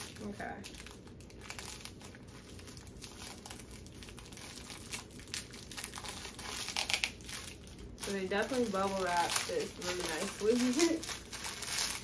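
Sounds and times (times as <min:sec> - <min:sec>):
plastic packaging crinkling: 0:00.0 - 0:12.0.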